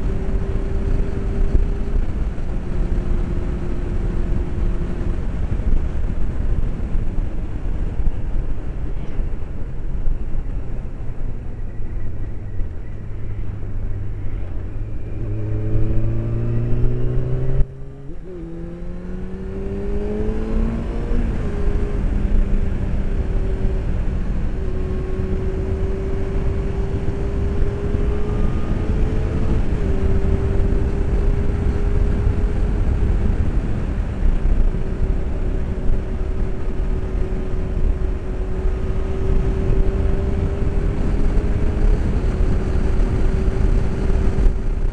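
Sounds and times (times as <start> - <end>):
motorcycle engine revving: 0.0 - 7.5, 12.6 - 44.9
wind rumble: 0.0 - 44.9.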